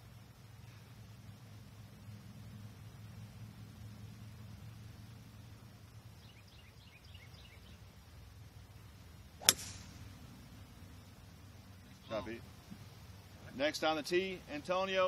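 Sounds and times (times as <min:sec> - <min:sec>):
golf club striking ball: 0:09.4 - 0:10.2.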